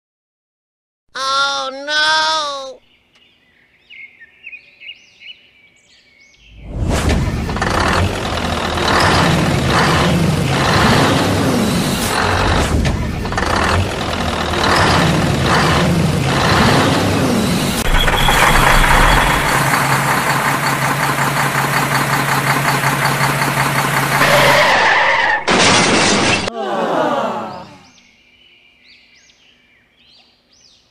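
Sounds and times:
vehicle engine revving: 6.6 - 25.0
loud burst: 6.6 - 26.5.

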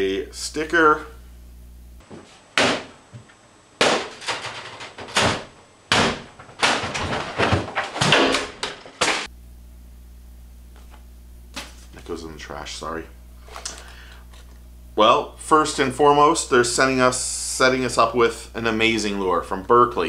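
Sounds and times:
loud bangs and crashes: 3.8 - 9.3.

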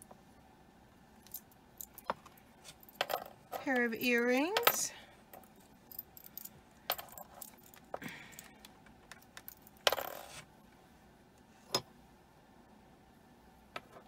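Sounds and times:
earring clattering clink: 1.2 - 8.5, 9.1 - 10.4.

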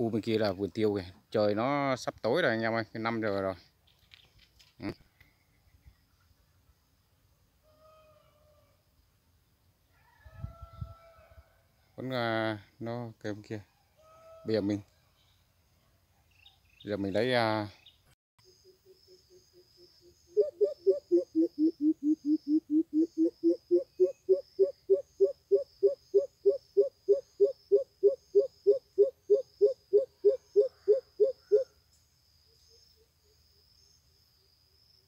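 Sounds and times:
faint insects trilling: 16.4 - 35.0
bird hooting deeply: 20.3 - 31.7.

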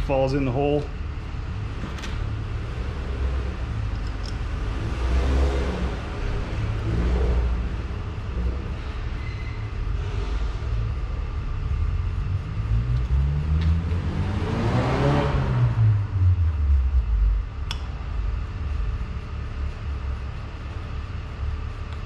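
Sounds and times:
steady low rumble: 0.0 - 22.0
motor vehicle passing by: 1.7 - 17.2
sharp click: 17.6 - 17.9.

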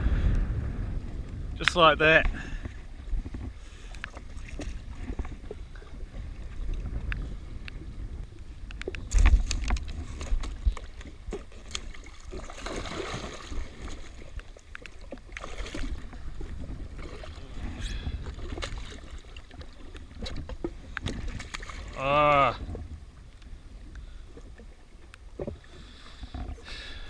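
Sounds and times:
wind rumble on microphone: 0.0 - 26.7
water splashing against jet ski: 0.0 - 27.0
knocks and clicks against hull: 1.3 - 12.5, 13.5 - 26.7.

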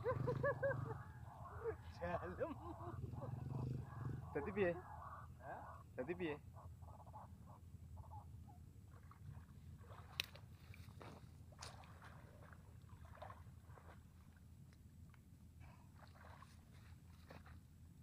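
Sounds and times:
low steady rumble: 0.0 - 18.0
person wading through water: 8.8 - 17.9.

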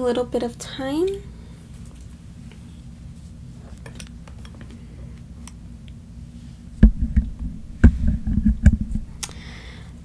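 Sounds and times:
steady low hum: 0.0 - 10.0
sharp thump: 6.8 - 9.1.

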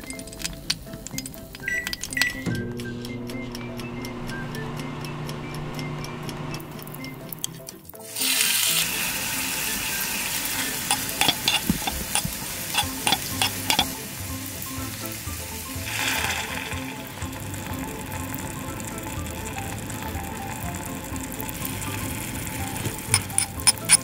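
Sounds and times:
onion sizzling in hot oil: 7.9 - 24.0
metal utensil clicking against pan: 9.6 - 15.0, 22.8 - 24.0.

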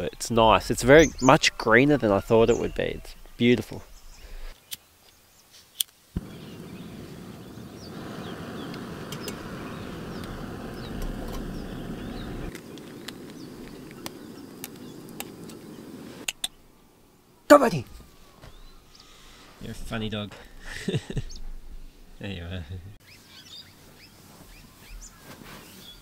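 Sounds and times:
faint birds chirping: 0.0 - 26.0
camp stove hissing: 6.2 - 16.5.

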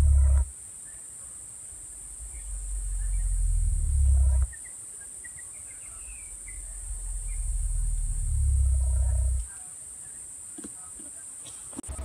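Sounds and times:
cassowary booming: 0.0 - 0.5, 1.9 - 4.6, 6.0 - 9.5
high insect drone: 0.0 - 12.0
small birds chirping: 0.0 - 12.0.

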